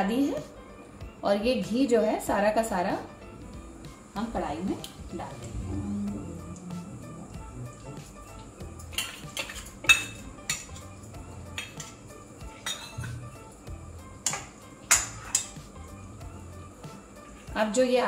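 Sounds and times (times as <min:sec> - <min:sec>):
ladle clinking against metal bowl: 0:12.6 - 0:13.2.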